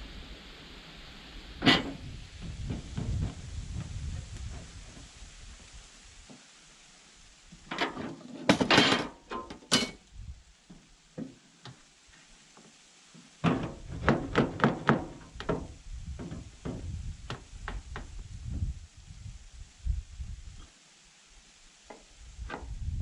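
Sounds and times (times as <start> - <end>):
knocks and thuds on wood: 13.4 - 18.1.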